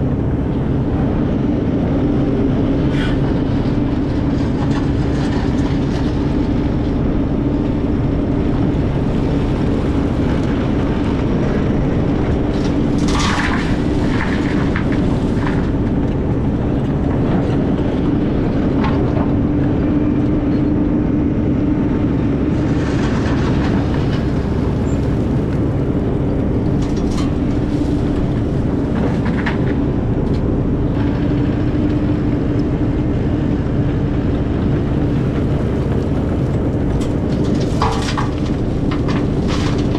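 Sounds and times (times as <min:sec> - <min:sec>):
diesel excavator engine running: 0:00.0 - 0:39.9
machine clanks and scrapes: 0:12.6 - 0:15.8, 0:26.7 - 0:30.4, 0:36.9 - 0:39.9.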